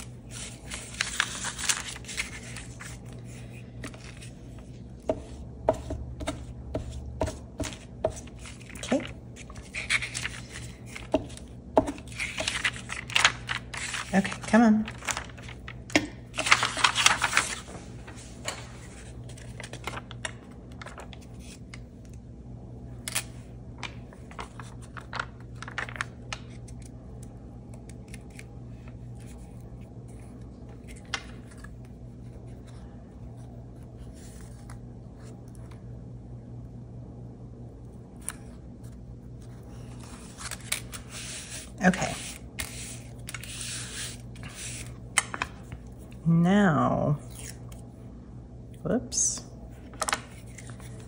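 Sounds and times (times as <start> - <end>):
soft paper rustles and taps: 0.3 - 22.2, 23.8 - 28.5, 44.6 - 46.2, 49.8 - 51.0.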